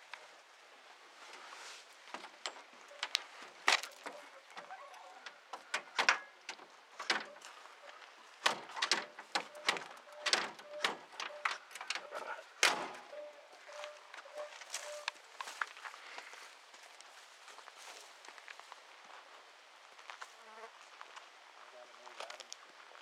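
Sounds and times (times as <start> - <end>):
metal door latch clicks: 4.0 - 7.4, 8.4 - 13.2.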